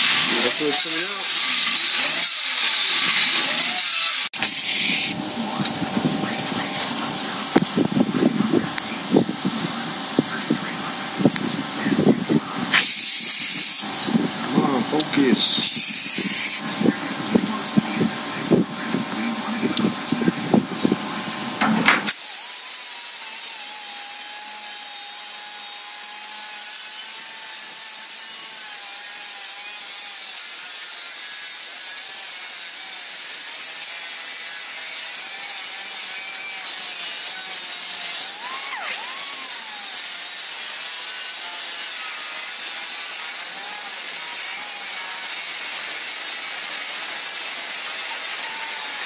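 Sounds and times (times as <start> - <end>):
pneumatic grinder grinding steel: 0.0 - 49.0.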